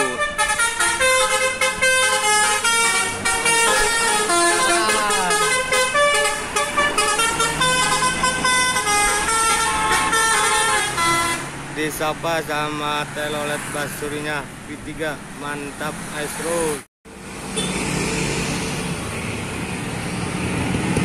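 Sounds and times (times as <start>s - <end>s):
musical bus horn melody: 0.0s - 11.6s.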